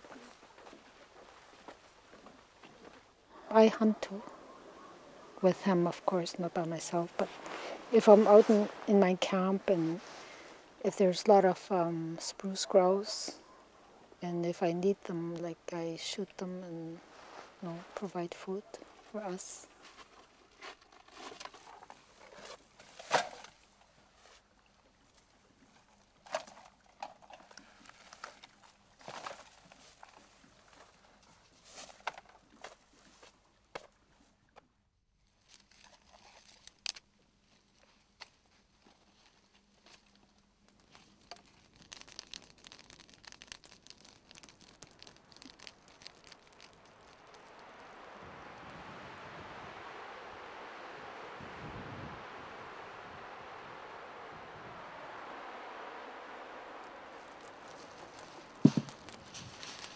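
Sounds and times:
wood campfire crackling: 0:00.0 - 0:33.3, 0:35.4 - 0:59.9
plastic sheeting and tarp rustling: 0:05.5 - 0:10.9, 0:16.9 - 0:24.5, 0:55.0 - 0:59.9.

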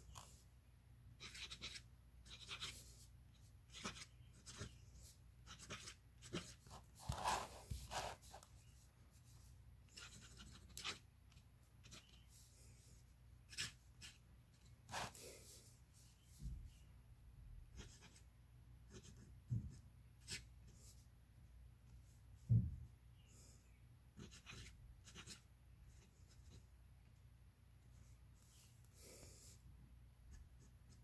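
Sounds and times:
fountain pen scratching on paper: 0:01.2 - 0:03.0, 0:03.7 - 0:08.5, 0:09.9 - 0:11.1, 0:11.8 - 0:12.2, 0:13.5 - 0:14.2, 0:14.9 - 0:15.2, 0:17.7 - 0:18.2, 0:18.9 - 0:19.3, 0:24.2 - 0:26.6.

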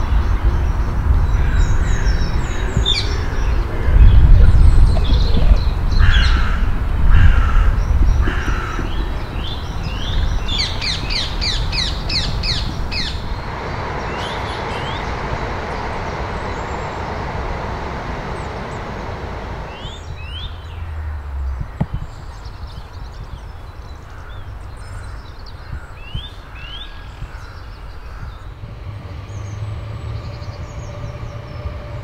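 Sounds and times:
songbird chirping: 0:00.0 - 0:32.0
crow cawing: 0:06.0 - 0:09.2.

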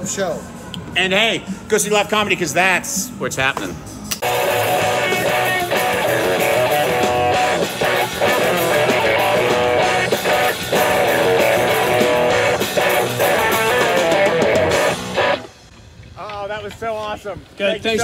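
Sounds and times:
drum kit: 0:04.2 - 0:15.5
electric guitars: 0:04.2 - 0:15.6.

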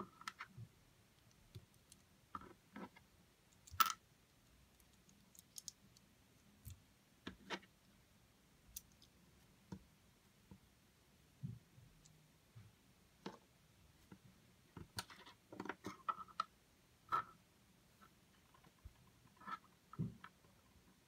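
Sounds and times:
plastic pieces clicking together: 0:04.7 - 0:06.8.

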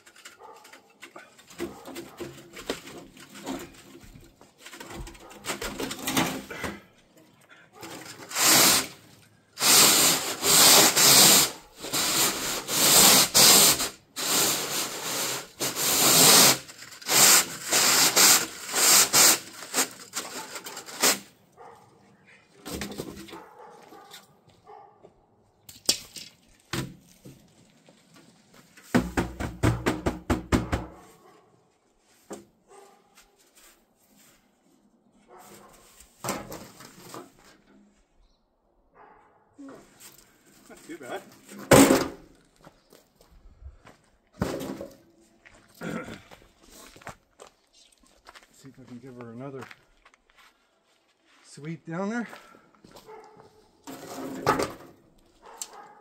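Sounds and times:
brush scraping inside chimney pipe: 0:07.8 - 0:21.3.

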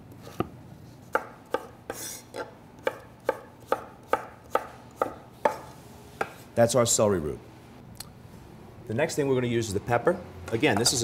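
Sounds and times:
knife chopping on wooden board: 0:01.1 - 0:06.4.

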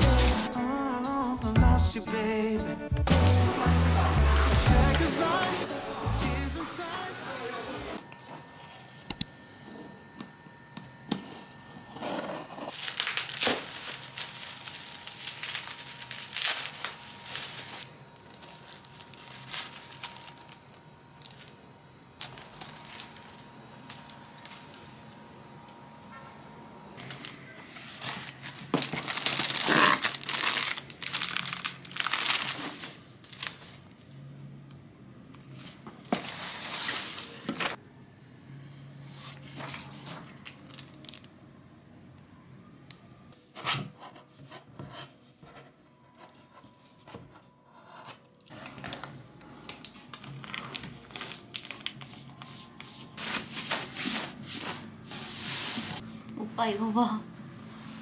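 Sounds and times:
packing tape ripping: 0:00.0 - 0:00.5, 0:12.7 - 0:20.6, 0:28.1 - 0:33.6
packaging rustling and crinkling: 0:12.6 - 0:21.6, 0:22.2 - 0:25.0, 0:27.0 - 0:33.8, 0:39.5 - 0:41.3, 0:48.4 - 0:56.0.

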